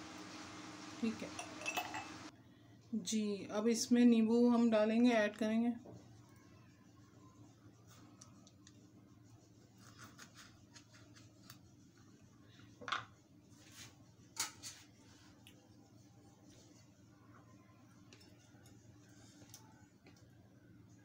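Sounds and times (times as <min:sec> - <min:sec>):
knife slicing lemon: 0:09.8 - 0:11.6.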